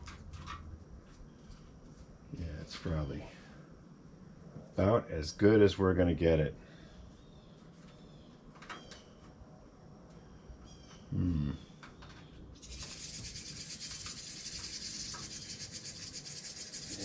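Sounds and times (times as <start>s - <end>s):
man humming: 11.1s - 11.7s
high chirps: 12.6s - 17.0s.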